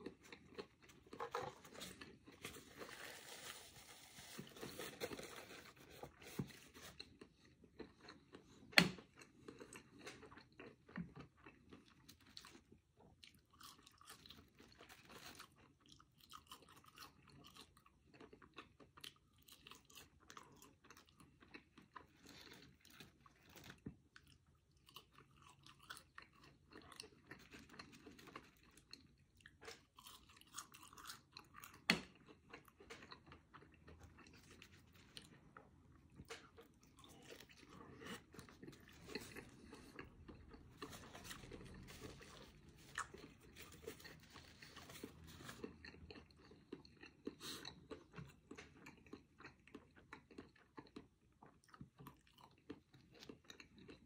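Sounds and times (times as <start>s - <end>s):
chewing and crunching food: 0.0s - 54.0s.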